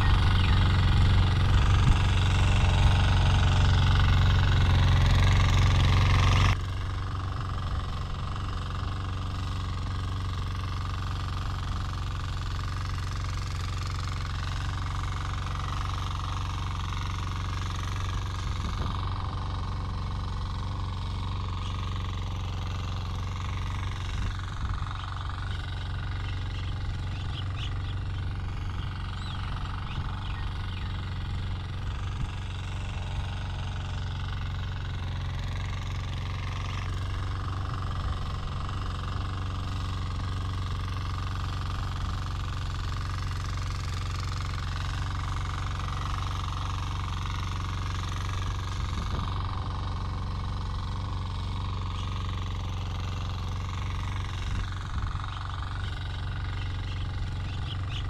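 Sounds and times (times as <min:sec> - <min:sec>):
small rotavator engine running: 0:00.0 - 0:58.0.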